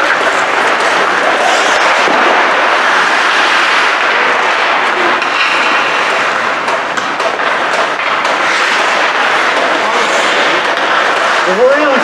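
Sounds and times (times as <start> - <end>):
ice rink rushing noise: 0.0 - 12.0.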